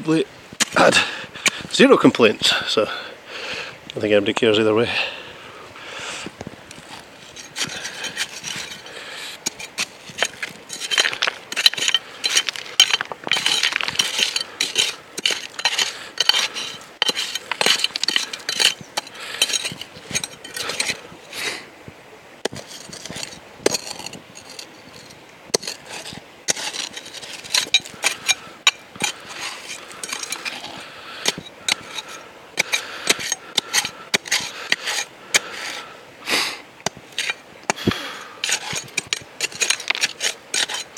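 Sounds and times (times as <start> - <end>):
stones and gravel clinking and scraping: 6.4 - 21.6, 22.4 - 35.9, 36.8 - 40.9.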